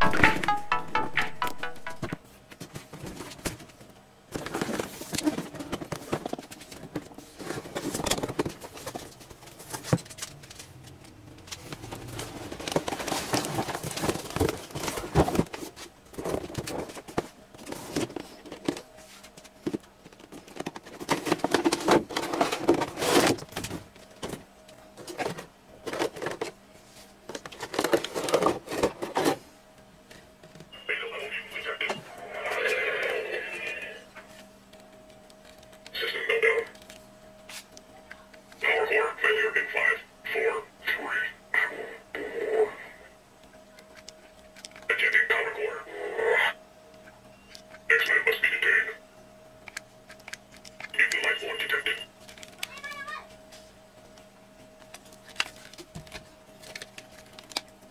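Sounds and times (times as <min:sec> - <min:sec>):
packaging rustling and crinkling: 0:11.5 - 0:24.3, 0:54.8 - 0:57.8.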